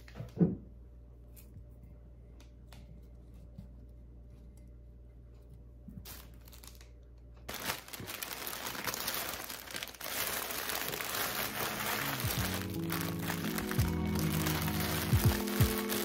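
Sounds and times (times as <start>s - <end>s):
cellophane crinkling: 6.0s - 16.0s.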